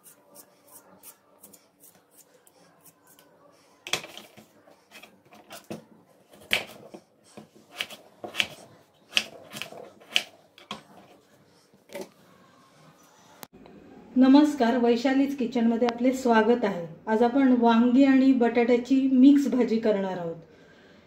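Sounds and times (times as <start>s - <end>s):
vegetable peeler scraping potato: 0.0s - 3.2s, 6.3s - 11.2s
knife slicing onto cutting board: 6.4s - 10.3s.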